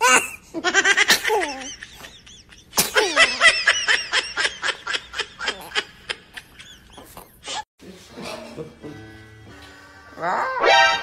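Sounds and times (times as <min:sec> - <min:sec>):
baby laughing: 0:00.0 - 0:07.6
baby sneezing: 0:02.8 - 0:03.2.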